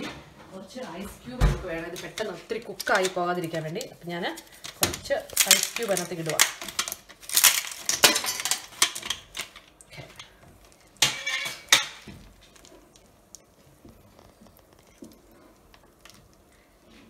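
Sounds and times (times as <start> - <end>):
ice cube tray cracking: 1.9 - 13.4.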